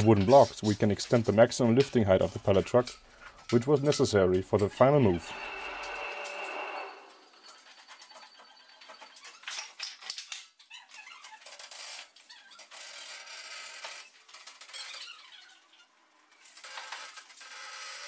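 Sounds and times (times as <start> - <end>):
pallet truck squeaking and scraping: 0.0 - 1.0, 4.7 - 9.8.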